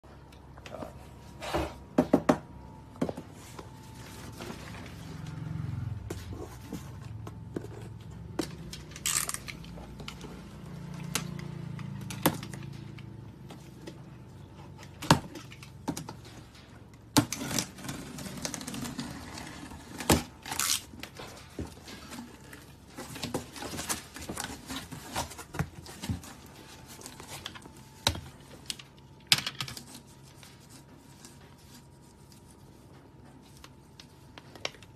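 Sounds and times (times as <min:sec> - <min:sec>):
tape tearing: 0:08.9 - 0:09.8, 0:17.2 - 0:21.2.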